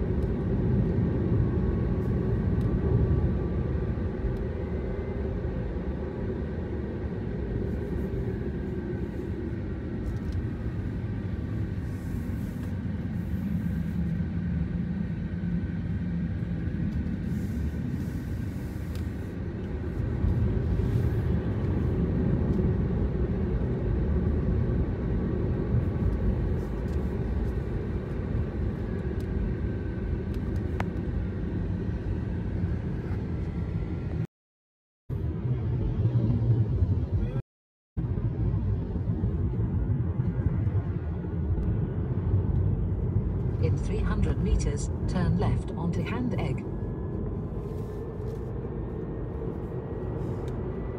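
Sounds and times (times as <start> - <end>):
car engine and tyre rumble: 0.0 - 34.3, 35.1 - 37.4, 38.0 - 50.9.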